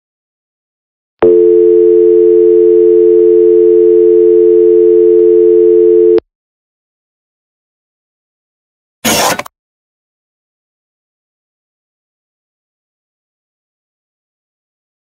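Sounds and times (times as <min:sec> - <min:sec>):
phone dial tone: 0:01.2 - 0:06.2.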